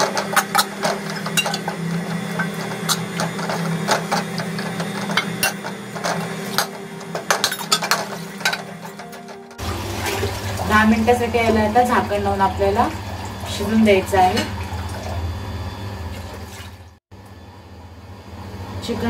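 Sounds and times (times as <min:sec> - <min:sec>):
spatula scraping a metal pan: 0:00.0 - 0:09.6.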